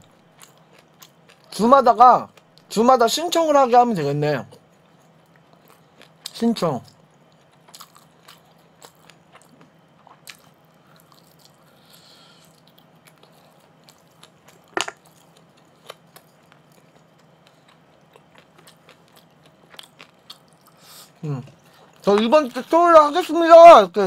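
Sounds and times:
person chewing and biting: 7.2s - 21.0s.

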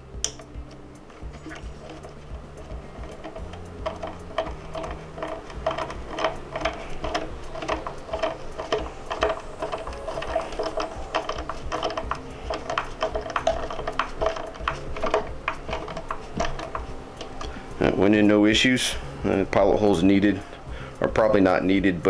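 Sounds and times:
ratcheting screwdriver clicking: 0.2s - 17.6s.

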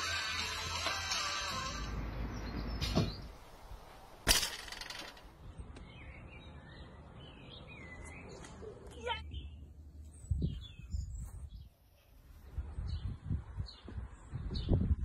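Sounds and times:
birds chirping: 1.5s - 15.0s
loud sharp crack: 4.2s - 5.3s.

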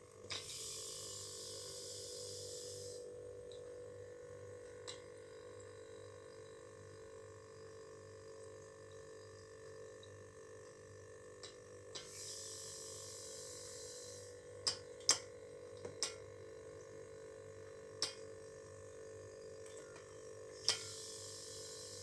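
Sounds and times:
refrigerator compressor humming: 0.0s - 22.0s
refrigerant hissing through hose: 0.4s - 3.1s, 12.0s - 14.4s, 20.7s - 22.0s.

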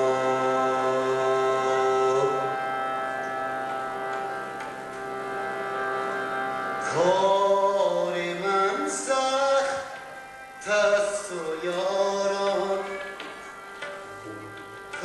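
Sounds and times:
man singing: 0.0s - 2.7s, 6.8s - 13.4s
harmonium drone: 0.0s - 15.0s.

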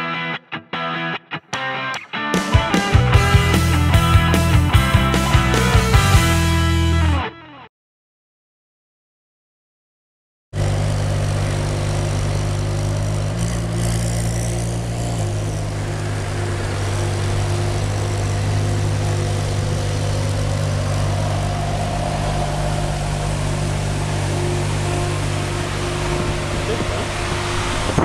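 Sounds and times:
car engine idling: 10.6s - 28.0s.

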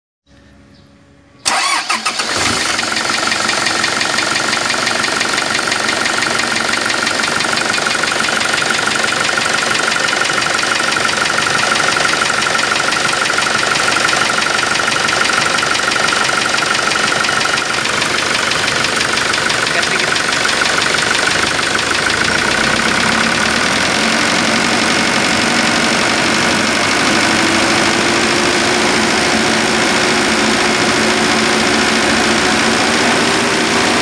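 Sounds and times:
diesel engine starting and idling: 1.4s - 34.0s.

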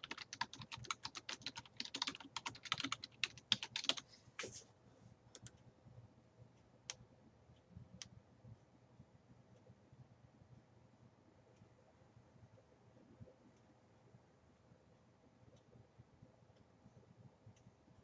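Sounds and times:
typing on computer keyboard: 0.0s - 4.0s, 5.3s - 5.6s.

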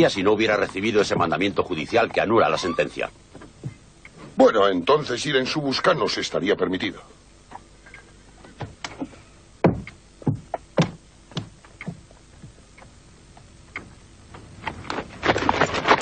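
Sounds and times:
sharp knocks and clicks: 9.6s - 13.9s.

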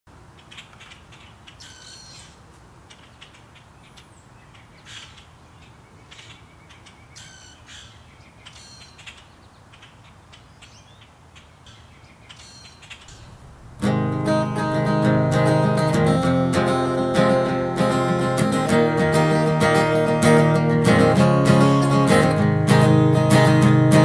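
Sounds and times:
harsh hoarse bird calls: 0.4s - 24.0s
low steady rumble: 13.0s - 16.6s.

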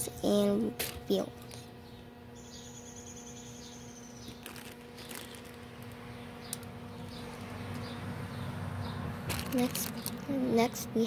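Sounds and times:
low electrical hum: 0.0s - 11.0s
faint clicks and rustles: 4.3s - 7.9s.

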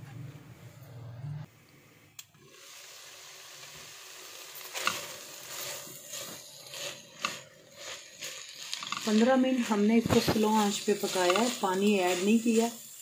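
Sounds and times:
chicken sizzling in a pan: 2.5s - 13.0s
spatula scraping and stirring: 4.5s - 13.0s.

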